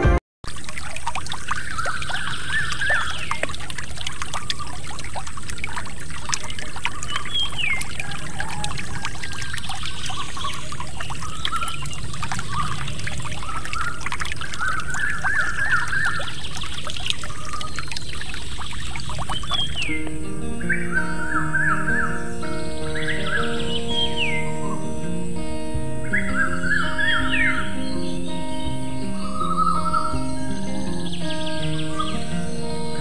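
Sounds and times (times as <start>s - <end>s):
water trickling and pouring: 0.4s - 20.1s
small water splashes: 0.4s - 20.2s
birds chirping: 1.3s - 33.0s.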